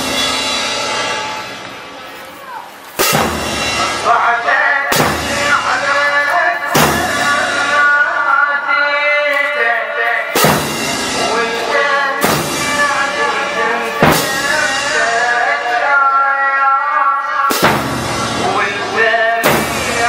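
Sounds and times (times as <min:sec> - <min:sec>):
loud heavy beat: 0:00.0 - 0:01.9, 0:03.0 - 0:08.4, 0:10.3 - 0:15.5, 0:17.5 - 0:20.0
man chanting into a microphone: 0:03.8 - 0:10.4, 0:11.1 - 0:17.6, 0:18.2 - 0:20.0.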